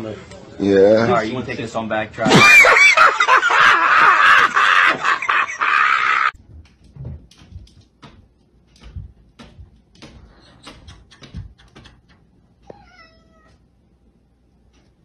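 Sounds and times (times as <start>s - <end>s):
distorted shrieking and yelling: 2.2s - 3.2s
faint taps and thuds: 6.4s - 12.0s.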